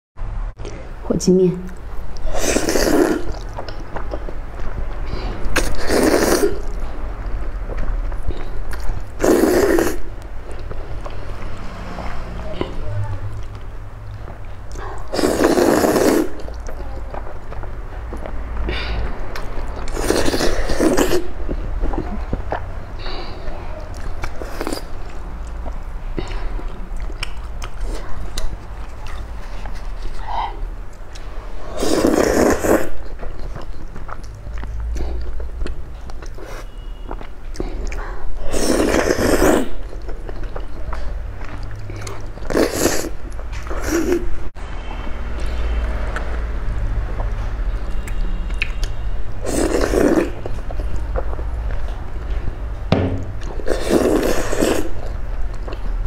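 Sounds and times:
wet mouth noises: 1.6 - 12.0, 13.3 - 44.5, 53.3 - 56.0
noodles being slurped: 2.2 - 3.5, 5.2 - 6.8, 9.1 - 10.1, 14.8 - 16.7, 19.8 - 21.4, 31.6 - 33.4, 38.4 - 40.3, 41.8 - 44.3, 49.4 - 51.0, 53.6 - 55.2.

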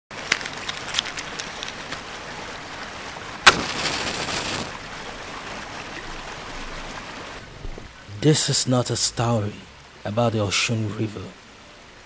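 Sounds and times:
water drips and splashes: 0.1 - 7.9
running water: 0.1 - 12.0
sharp loud splash: 3.4 - 4.8.

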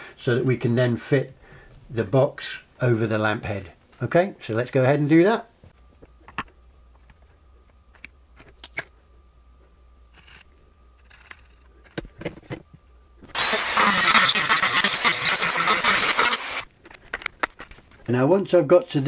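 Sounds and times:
rotary tool grinding plastic: 10.1 - 12.0, 13.3 - 16.7.

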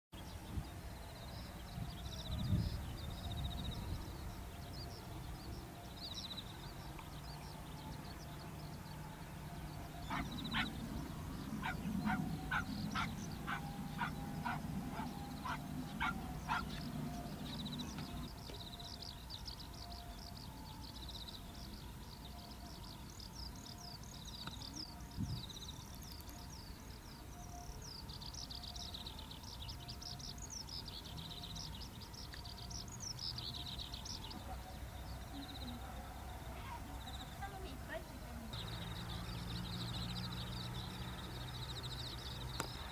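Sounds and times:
small birds chirping: 0.2 - 42.9
insects calling: 2.7 - 42.9.

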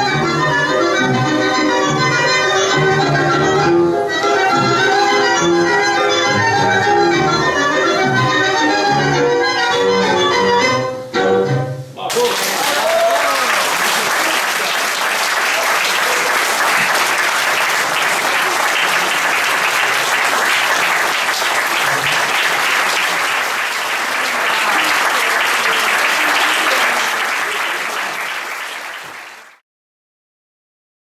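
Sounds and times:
audience applauding: 12.1 - 29.6.

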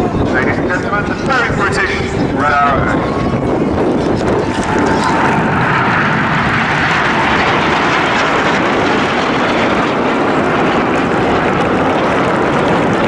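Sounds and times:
jet engines rushing overhead: 0.0 - 13.0.

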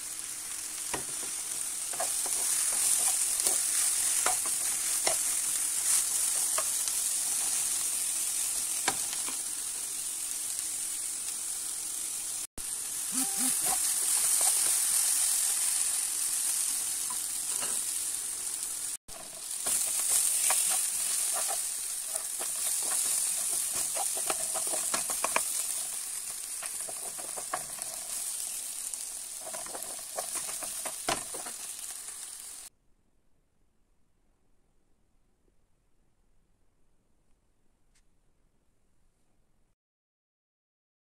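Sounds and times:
vegetables sizzling in oil: 0.0 - 32.7
utensil scraping a pan: 19.1 - 25.8.

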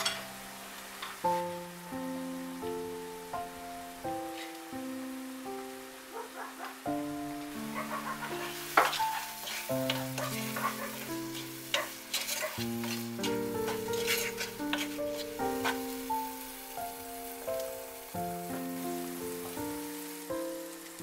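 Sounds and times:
background music: 0.0 - 21.0
food sizzling in a pot: 0.0 - 21.0
wooden spoon scraping a pot: 8.2 - 16.0.

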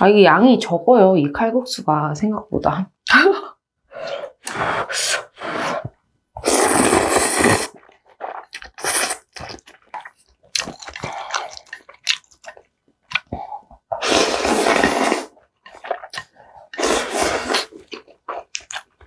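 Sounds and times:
slurping noodles: 4.0 - 12.0, 13.2 - 18.9
wet chewing mouth sounds: 6.4 - 19.0.

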